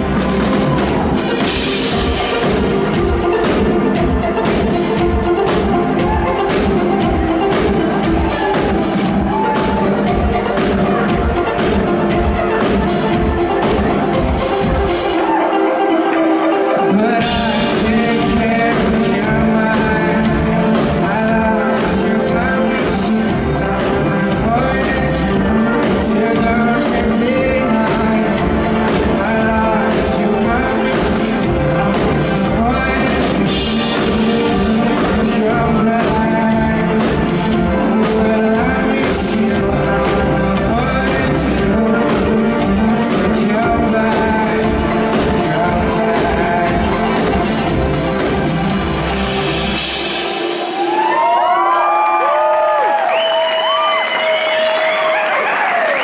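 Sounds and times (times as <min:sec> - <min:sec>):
live band playing electropop: 0:00.0 - 0:56.0
male lead vocal: 0:16.8 - 0:48.8.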